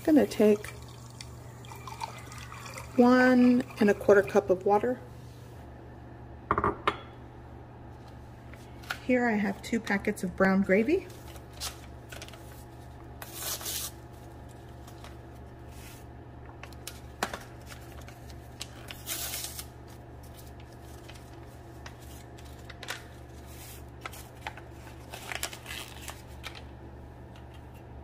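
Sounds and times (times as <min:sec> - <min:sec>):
steady low hum: 0:00.0 - 0:25.5
paper packets rustling and crinkling: 0:10.9 - 0:26.7.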